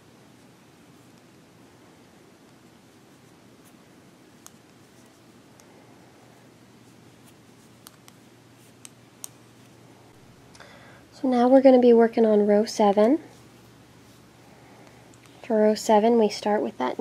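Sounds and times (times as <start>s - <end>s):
knitting needles clicking: 4.4s - 5.7s, 7.3s - 9.4s
yarn rustling: 12.6s - 15.8s.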